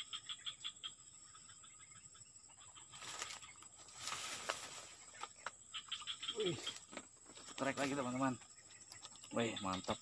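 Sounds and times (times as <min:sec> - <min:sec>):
grass and brush rustling: 0:02.6 - 0:10.0.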